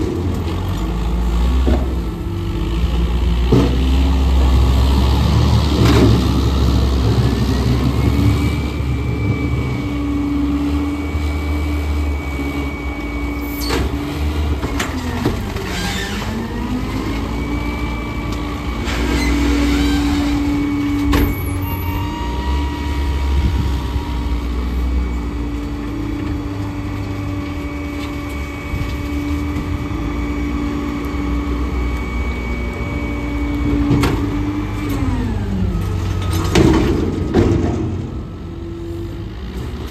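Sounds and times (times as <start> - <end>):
diesel engine idling with whine: 0.0 - 39.9.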